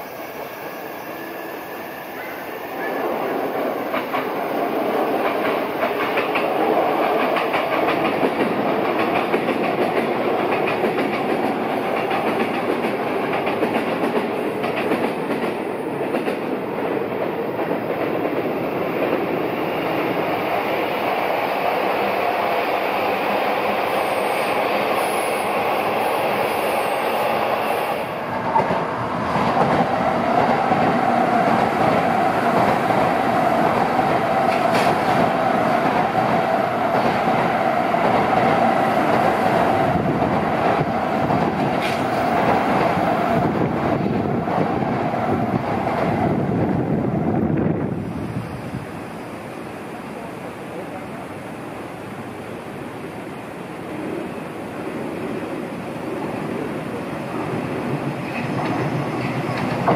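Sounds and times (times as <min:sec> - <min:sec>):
electric trains rumbling past: 0:00.0 - 0:59.9
high-speed train running by: 0:00.0 - 0:59.9
wheels clicking over rail joints: 0:58.0 - 0:59.9.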